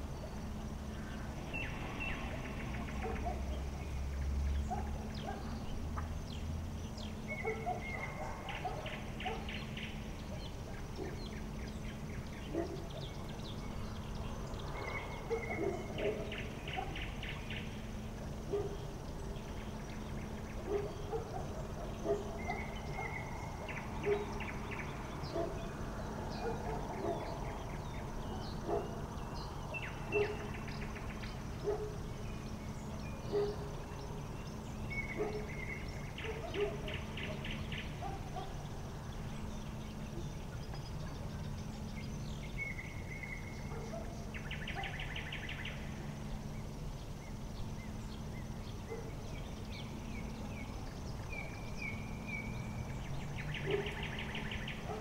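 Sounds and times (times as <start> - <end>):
steady low hum: 0.0 - 55.0
bird chirps and calls: 0.2 - 17.8.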